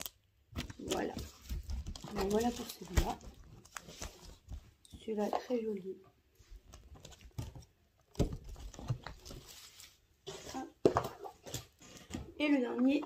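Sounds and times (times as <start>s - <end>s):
packaging rustling and tapping: 0.6s - 5.5s, 6.6s - 9.9s.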